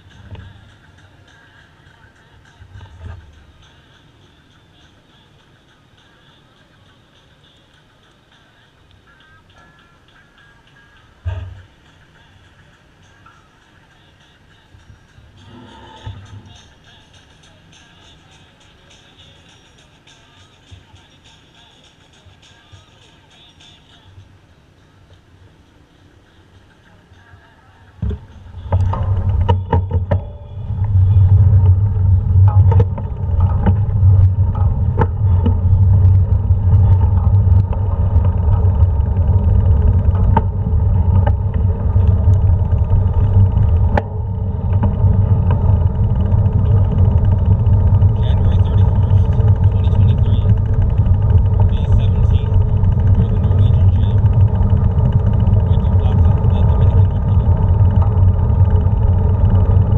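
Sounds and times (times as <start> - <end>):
constant hum: 0.0 - 59.9
bike rumbling over stone paving: 28.0 - 59.9.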